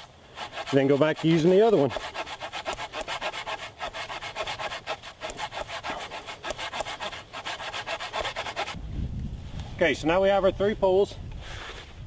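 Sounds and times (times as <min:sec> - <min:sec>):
saw cutting wood: 0:00.0 - 0:08.8.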